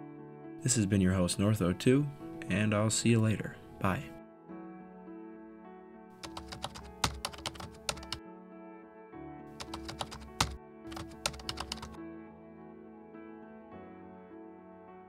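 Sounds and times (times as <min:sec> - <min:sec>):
soft background music: 0:00.0 - 0:15.0
keyboard key clicks: 0:09.6 - 0:12.0.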